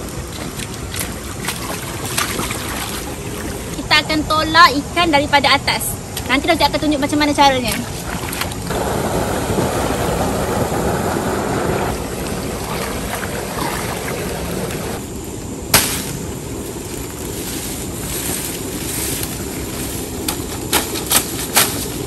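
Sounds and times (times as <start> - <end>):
water running and sloshing: 0.0 - 3.8, 7.4 - 10.7, 11.5 - 15.0.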